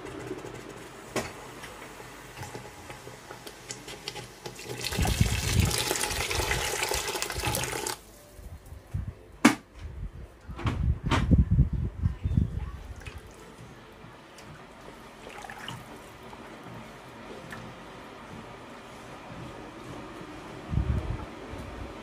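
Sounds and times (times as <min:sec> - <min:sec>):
liquid pouring into a pot: 0:03.5 - 0:08.0, 0:15.2 - 0:16.1.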